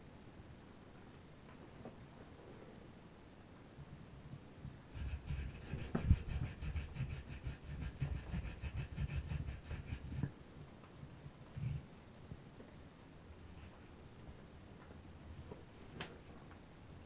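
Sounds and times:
monkey scraping a hairbrush: 5.0s - 10.3s.

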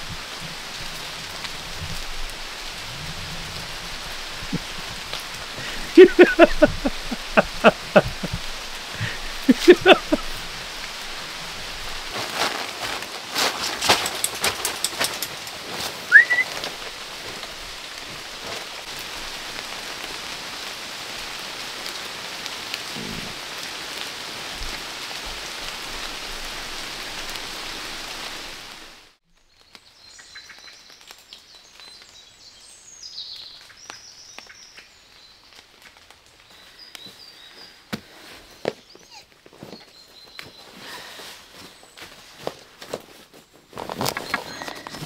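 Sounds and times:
steady rain: 0.0s - 43.0s
short rising whistle: 16.1s - 16.5s.

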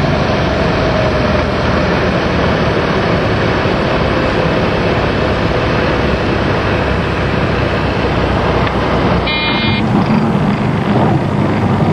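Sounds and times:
light aircraft engine drone: 0.0s - 11.9s
brief high-pitched tone: 9.3s - 9.9s.

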